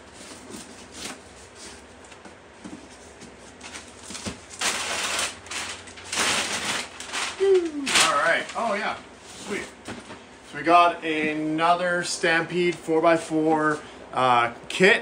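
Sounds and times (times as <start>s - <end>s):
cardboard flaps and paper rustling: 0.1s - 10.2s.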